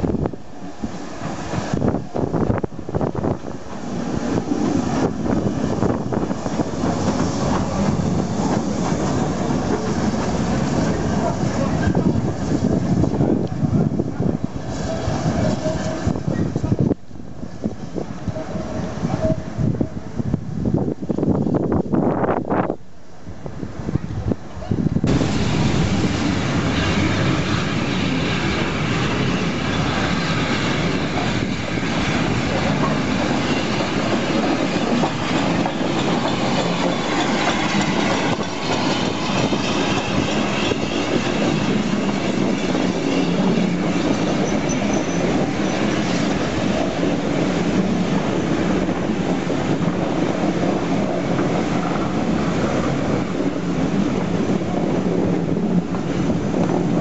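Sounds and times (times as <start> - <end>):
train wheels on rails: 0.0 - 20.4, 24.2 - 57.0
faint high squeal: 35.8 - 45.8.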